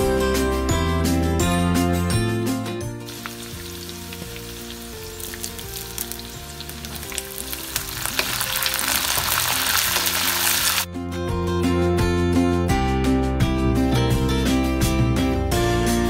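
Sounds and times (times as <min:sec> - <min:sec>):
food sizzling in hot oil: 0:03.0 - 0:10.9.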